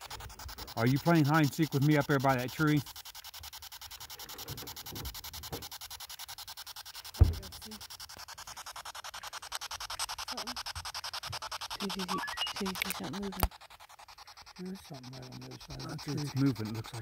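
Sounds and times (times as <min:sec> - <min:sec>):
dull thump: 0:07.2 - 0:07.6
chopped radio static: 0:11.8 - 0:13.5.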